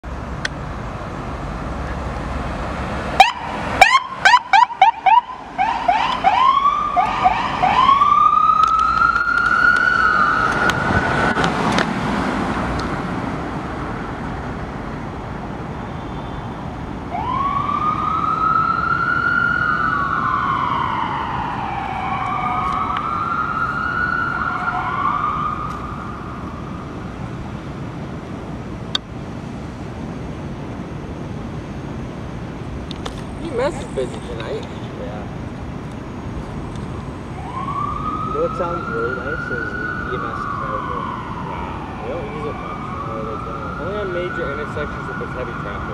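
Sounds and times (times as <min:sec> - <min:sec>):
ambulance siren: 0:03.2 - 0:11.5, 0:15.6 - 0:27.5, 0:36.9 - 0:45.9.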